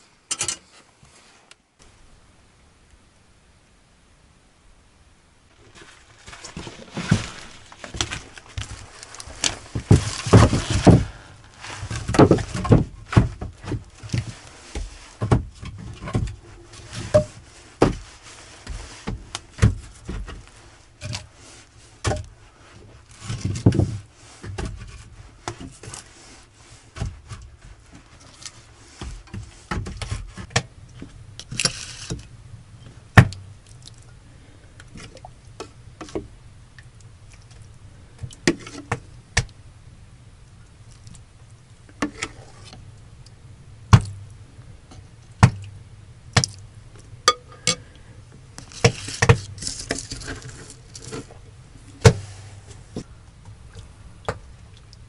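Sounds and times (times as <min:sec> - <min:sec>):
firewood being split: 0:05.6 - 0:21.4, 0:33.1 - 0:36.3, 0:45.4 - 0:53.6.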